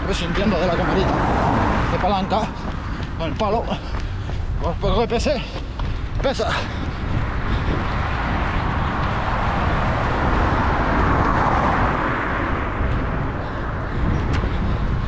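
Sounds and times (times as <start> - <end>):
car passing by: 0.0 - 3.8, 6.9 - 15.0
low rumble: 5.8 - 15.0.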